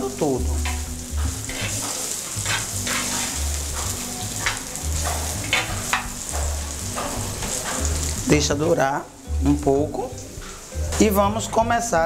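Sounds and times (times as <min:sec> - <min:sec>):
onions sizzling in oil: 0:00.0 - 0:12.0
spoon scraping pan: 0:00.6 - 0:08.2.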